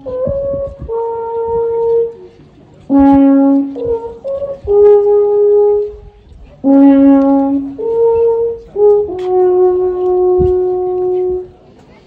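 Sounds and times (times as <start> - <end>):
alphorn long held notes: 0.0 - 11.9.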